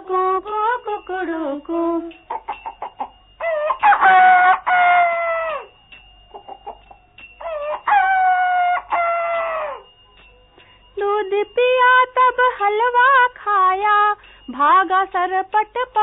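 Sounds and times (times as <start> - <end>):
chicken clucking: 2.3 - 3.2, 6.3 - 7.0
rooster crowing: 2.3 - 10.0.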